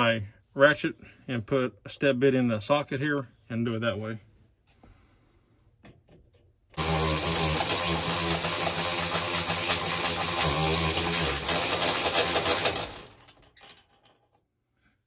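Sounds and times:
electric drill drilling sheet metal: 6.8 - 13.4.

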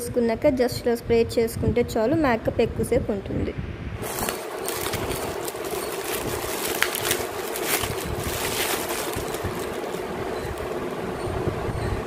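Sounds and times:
bubble wrap crackling: 4.0 - 11.0.

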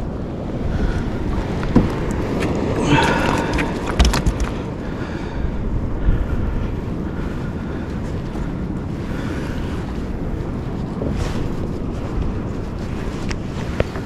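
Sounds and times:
wind buffeting microphone: 0.0 - 14.0
sharp clicks and knocks: 3.5 - 4.6.

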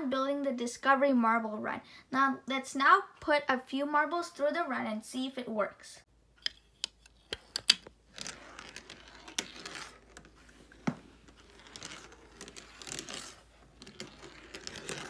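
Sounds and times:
marble clicking against track pieces: 6.4 - 15.0
marble rolling on plastic track: 7.6 - 15.0.

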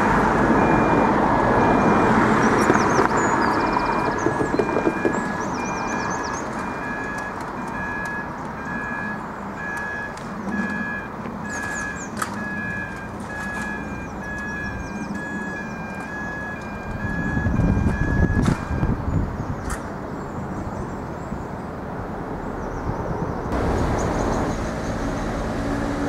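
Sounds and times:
birds chirping: 2.4 - 7.2, 11.5 - 12.5, 14.0 - 16.4, 22.4 - 26.0.

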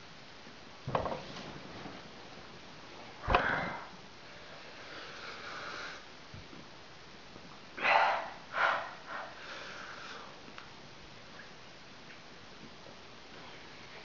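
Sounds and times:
man breathing hard: 7.8 - 10.4.

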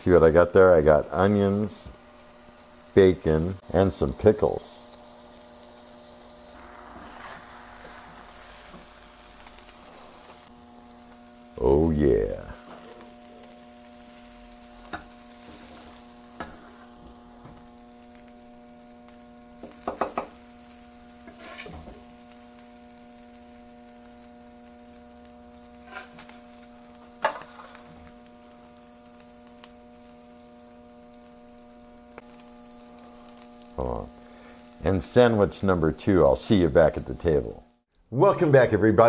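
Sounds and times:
electrical hum: 0.0 - 39.0
faint sizzling: 0.0 - 39.0
metal spatula scraping griddle: 14.8 - 17.0, 21.2 - 22.0, 25.8 - 26.4, 27.2 - 28.0.

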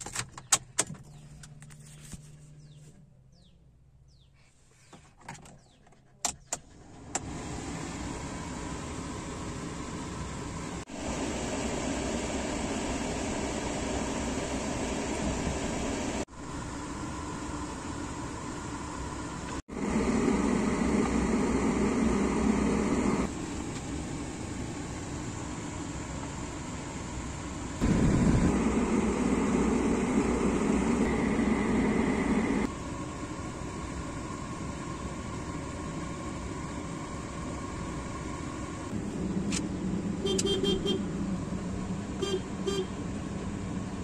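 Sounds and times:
car air conditioning fan blowing: 6.8 - 44.0
air rushing inside a car: 19.6 - 23.4, 27.8 - 32.7.

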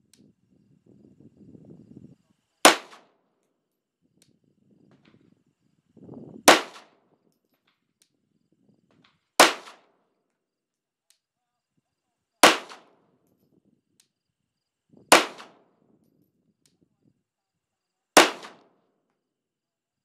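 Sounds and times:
pistol shots with echo: 2.7 - 3.2, 6.5 - 7.0, 9.4 - 10.0, 12.4 - 13.1, 15.1 - 15.8, 18.2 - 18.8.

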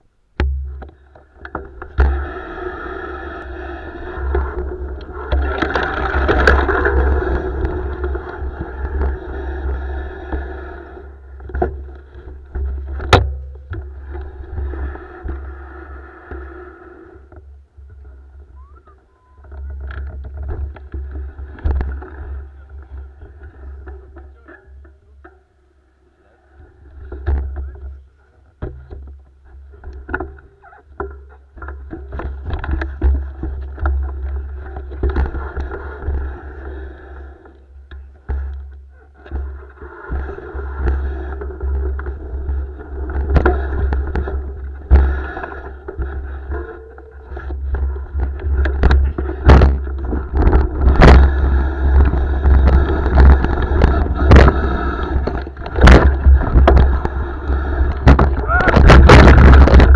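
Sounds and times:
bike rattling over ground: 0.4 - 16.0, 26.6 - 59.9
wind on camera microphone: 47.4 - 59.9.

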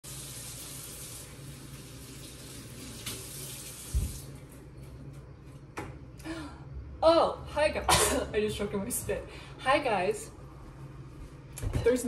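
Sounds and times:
faucet running into metal sink: 0.1 - 4.4.

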